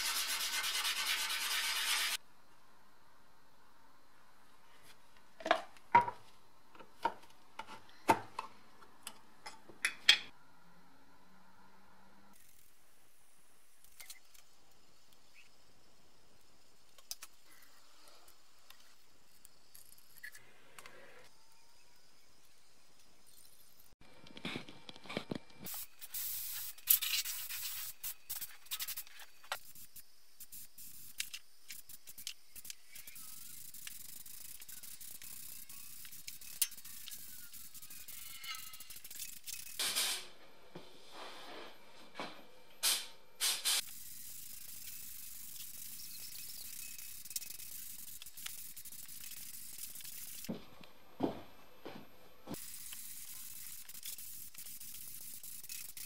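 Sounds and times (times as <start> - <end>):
paint spray gun hissing: 25.7 - 40.2, 42.8 - 50.6, 52.6 - 56.0.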